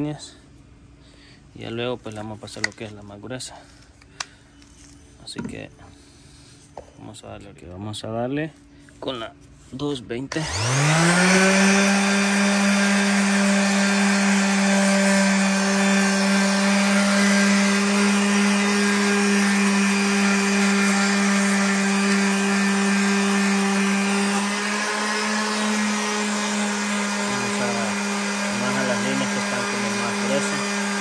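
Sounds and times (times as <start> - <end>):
electric sander whining: 10.3 - 31.0.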